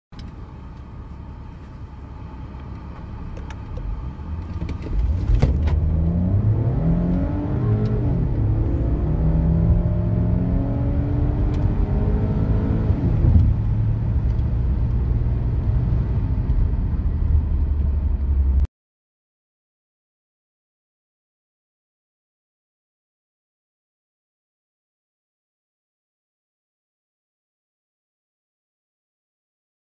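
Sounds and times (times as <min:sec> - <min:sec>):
car engine idling and accelerating: 0:00.1 - 0:18.7.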